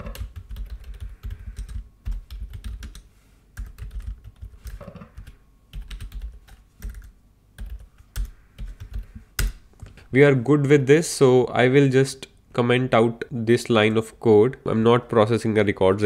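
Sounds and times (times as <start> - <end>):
typing on computer keyboard: 0.0 - 9.1.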